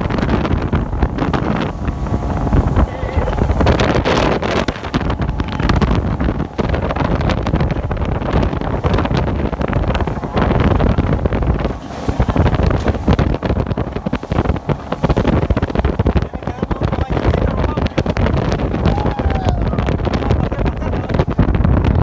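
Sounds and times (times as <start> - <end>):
boat engine noise: 0.0 - 22.0
rushing water: 0.0 - 22.0
wind buffeting microphone: 0.0 - 22.0.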